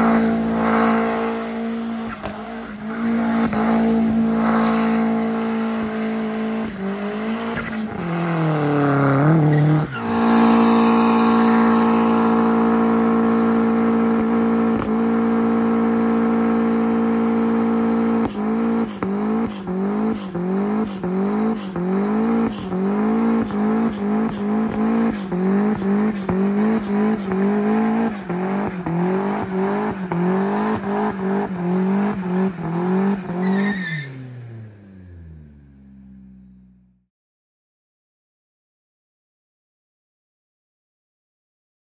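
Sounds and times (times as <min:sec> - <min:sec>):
tires spinning: 0:00.0 - 0:36.7
car engine revving: 0:00.0 - 0:37.0.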